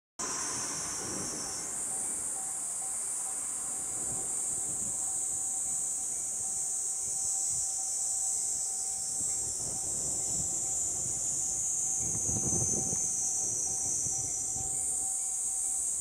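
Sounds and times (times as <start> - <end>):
cicadas droning: 0.2 - 16.0
train rumbling on rails: 0.2 - 16.0.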